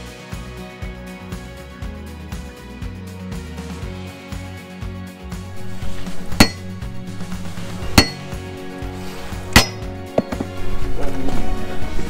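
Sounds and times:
background music: 0.0s - 12.0s
maul striking metal spike: 5.6s - 8.5s, 9.5s - 10.4s.

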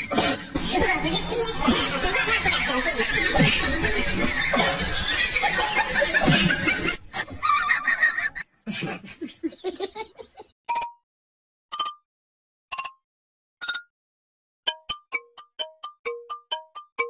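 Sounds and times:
man laughing: 1.6s - 10.5s.

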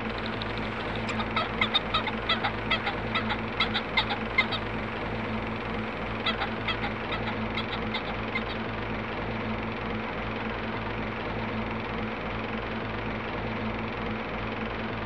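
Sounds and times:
fowl calling: 0.0s - 9.0s
mechanical hum: 0.0s - 15.0s.

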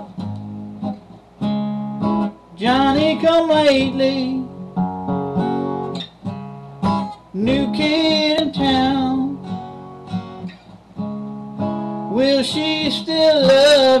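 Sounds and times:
acoustic guitar strumming: 0.0s - 14.0s
man singing: 2.5s - 4.6s, 7.3s - 9.5s, 12.1s - 14.0s.

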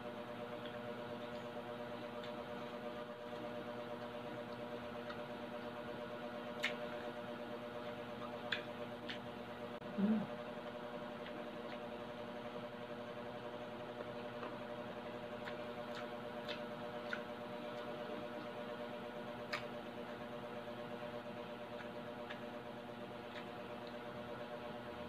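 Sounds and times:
low background hum: 0.0s - 25.0s
crunchy chewing: 0.6s - 9.7s, 10.3s - 24.9s.

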